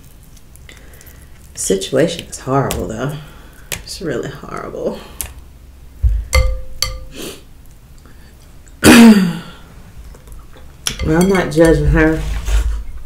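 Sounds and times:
throat clearing: 8.8s - 9.5s.

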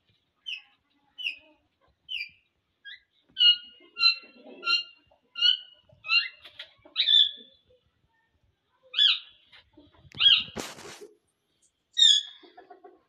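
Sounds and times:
cockatiels chirping: 2.1s - 7.4s, 10.2s - 10.6s
rustling: 10.0s - 11.7s.

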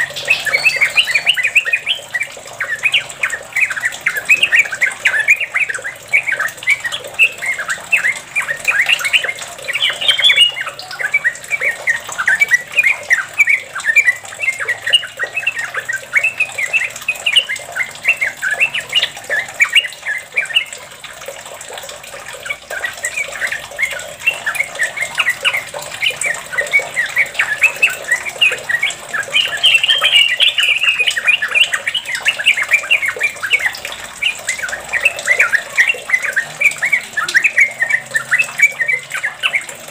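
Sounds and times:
bird singing chattering notes: 0.0s - 39.9s.

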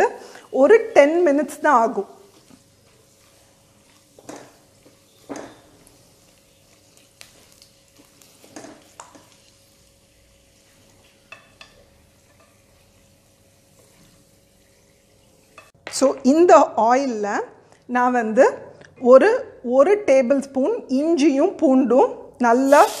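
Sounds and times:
oil sizzling: 0.0s - 15.8s, 22.5s - 23.0s
spatula scraping in a wok: 0.2s - 15.7s.

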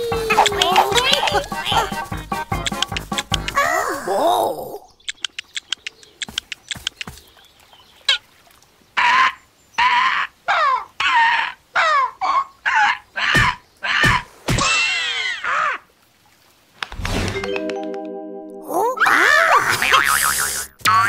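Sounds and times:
cartoon clicks: 2.6s - 3.6s, 5.0s - 7.1s.

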